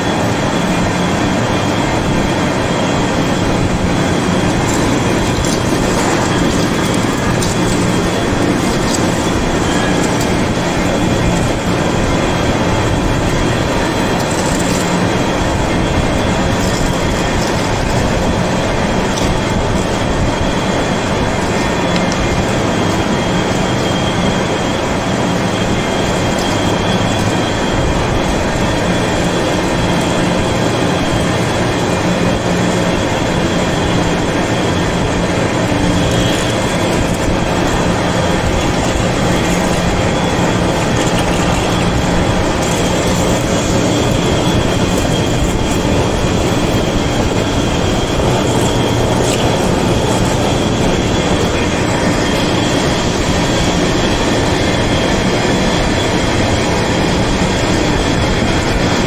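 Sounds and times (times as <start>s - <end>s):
high-pitched cutting whine: 0.0s - 59.0s
lathe machine hum: 0.0s - 59.0s.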